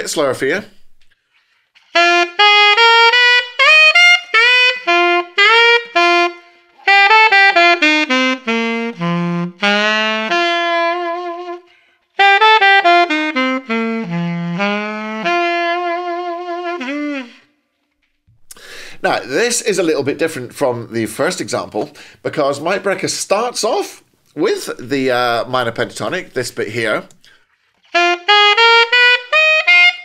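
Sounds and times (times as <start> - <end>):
alto saxophone bluesy lick: 1.0 - 17.6, 24.7 - 30.0.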